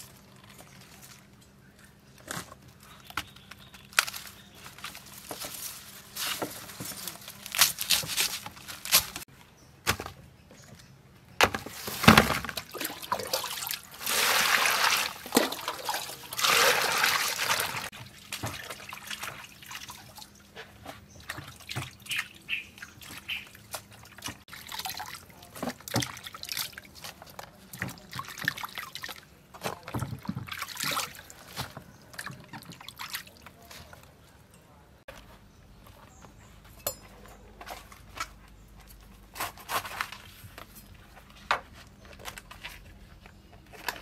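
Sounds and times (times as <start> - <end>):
water splashing and sloshing in basin: 11.7 - 34.3.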